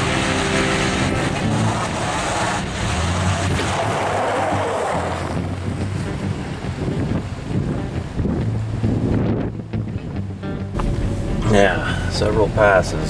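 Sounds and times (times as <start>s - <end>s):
truck engines pulling under load: 0.0s - 7.4s
tyres churning in snow: 0.0s - 7.4s, 10.8s - 13.0s
wind on microphone: 0.0s - 13.0s.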